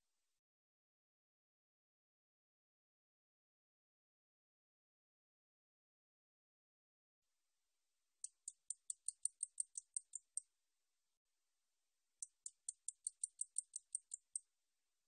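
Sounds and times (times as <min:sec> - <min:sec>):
katydid ticking song: 0:08.2 - 0:10.4, 0:12.2 - 0:14.4.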